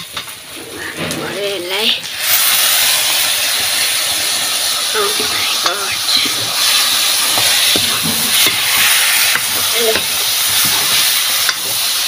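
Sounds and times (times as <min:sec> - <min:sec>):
chicken sizzling in a wok: 0:01.6 - 0:12.0
ladle stirring meat: 0:05.4 - 0:12.0.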